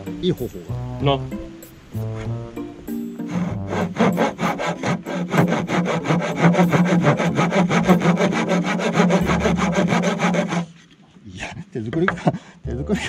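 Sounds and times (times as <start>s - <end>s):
saw cutting wood: 3.2s - 10.8s.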